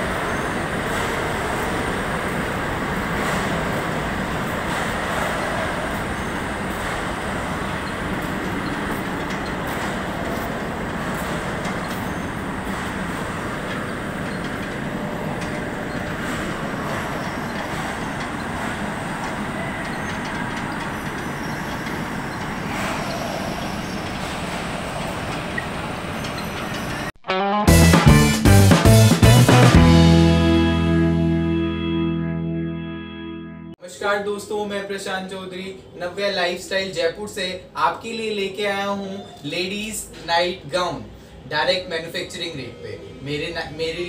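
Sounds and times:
steady mechanical noise: 0.0 - 27.2.

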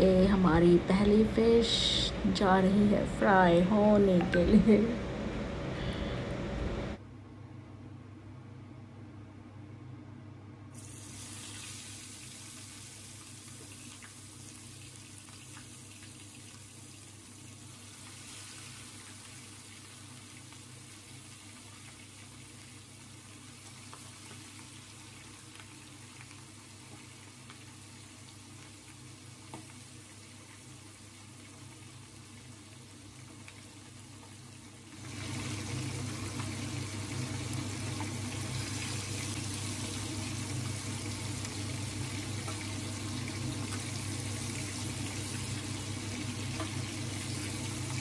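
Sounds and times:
low hum: 0.0 - 7.2
fish sizzling in hot oil: 10.8 - 48.0.

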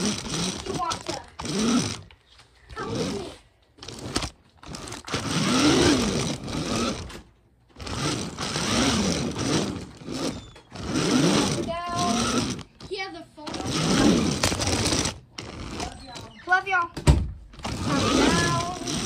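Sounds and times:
child imitating car engine: 0.0 - 1.9, 2.7 - 3.5, 11.1 - 15.0, 17.8 - 19.0.

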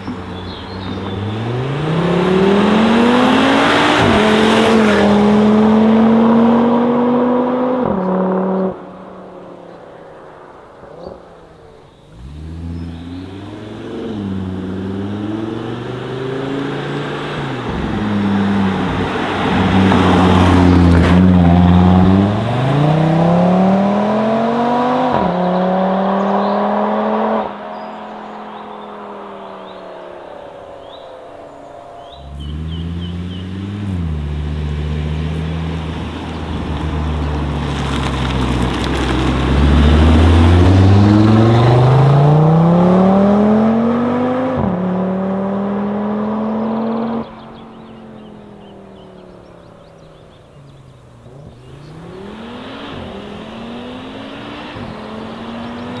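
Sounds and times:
car engine accelerating hard: 0.0 - 56.0.

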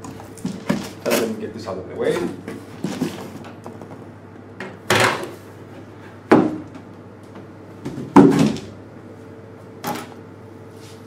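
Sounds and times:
loud bumps on a table: 6.3 - 6.8, 7.8 - 8.8.

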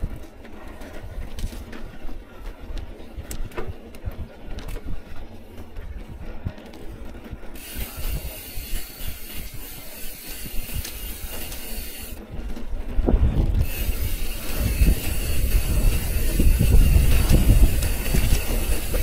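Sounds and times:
low riding rumble: 0.0 - 19.0
bicycle freehub buzzing: 7.5 - 19.0.

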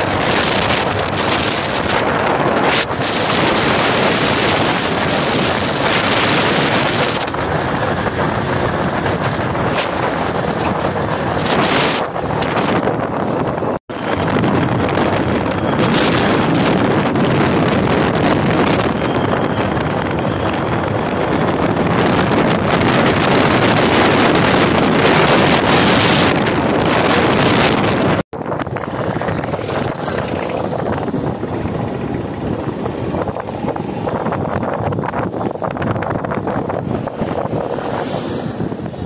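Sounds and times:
road noise: 0.0 - 39.0
wind rushing over microphone: 0.0 - 39.0.

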